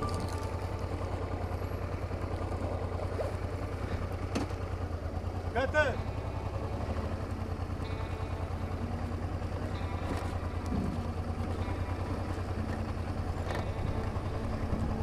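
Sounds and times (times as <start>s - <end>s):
motorcycle engine throbbing: 0.0s - 15.0s.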